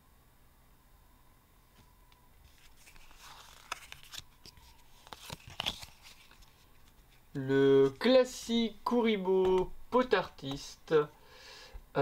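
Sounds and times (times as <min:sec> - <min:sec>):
cards rustling: 0:02.4 - 0:11.2
cards snapping: 0:02.8 - 0:06.9.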